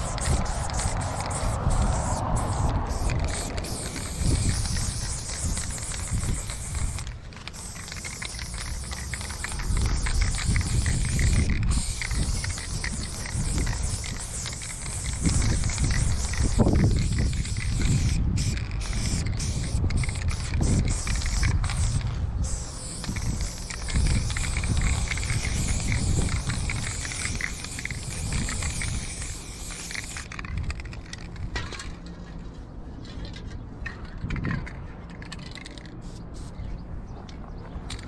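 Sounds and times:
aerosol spray can hissing: 0.0 - 22.0, 22.7 - 30.4.

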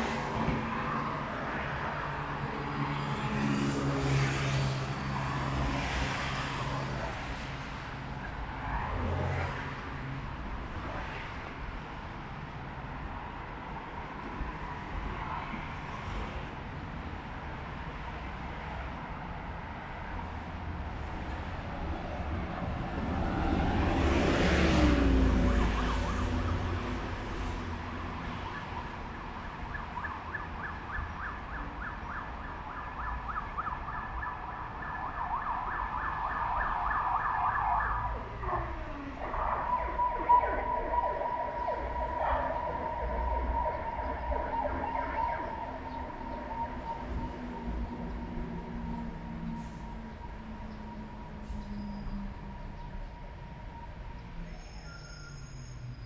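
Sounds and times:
bus passing: 0.0 - 56.0
street traffic hum: 0.0 - 56.0
high pulsing siren tone: 31.3 - 48.0
vehicle passing: 35.3 - 49.9.

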